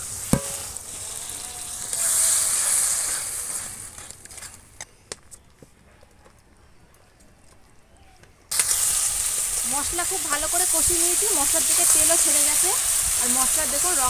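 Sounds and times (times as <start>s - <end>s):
paste sizzling in hot oil: 0.0s - 4.1s, 8.5s - 14.0s
sharp knock: 0.3s - 0.8s.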